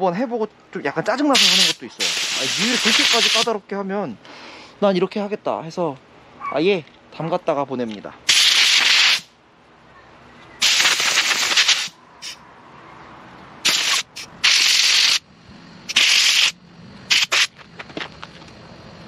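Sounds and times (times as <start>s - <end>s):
compressed air hissing blasts: 1.4s - 3.5s, 8.3s - 9.3s, 10.6s - 12.4s, 13.6s - 15.2s, 15.9s - 17.6s.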